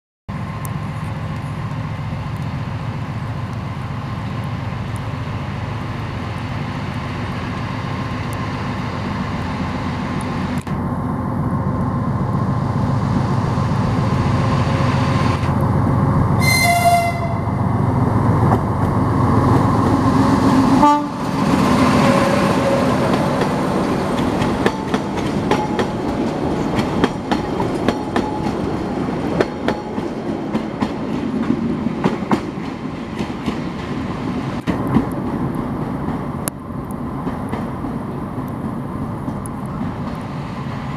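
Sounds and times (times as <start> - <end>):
diesel locomotive engine running: 0.3 - 40.9
train horn blast: 16.4 - 17.7, 20.7 - 23.1.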